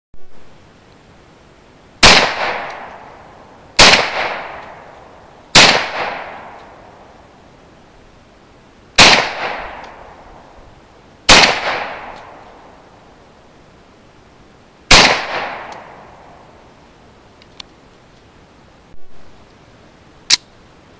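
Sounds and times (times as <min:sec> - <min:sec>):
pistol shots with echo: 0:02.0 - 0:03.1, 0:03.8 - 0:04.9, 0:05.6 - 0:06.6, 0:09.0 - 0:10.2, 0:11.3 - 0:12.4, 0:14.9 - 0:16.0.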